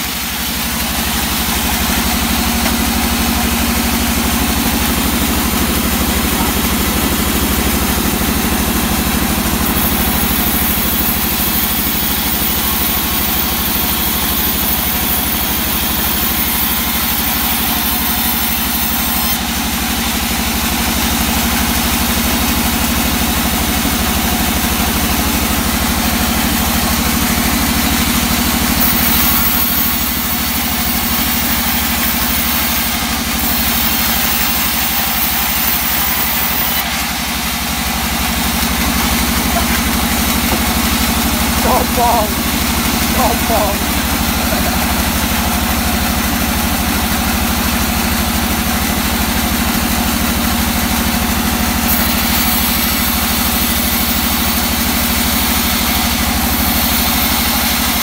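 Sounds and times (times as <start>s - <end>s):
band saw hum: 0.0s - 19.4s, 38.7s - 46.2s
saw blade cutting hiss: 9.4s - 19.4s, 28.8s - 36.9s.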